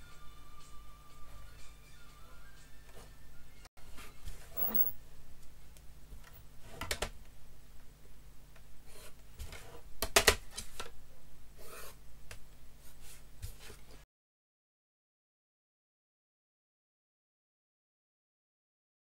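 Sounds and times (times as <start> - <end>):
pencil scratching on paper: 8.9 - 9.8, 11.6 - 12.0.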